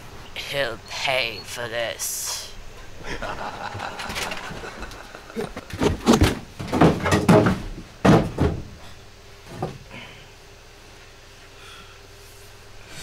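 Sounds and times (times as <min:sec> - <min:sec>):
heavy thumps and knocks: 0:05.6 - 0:08.8.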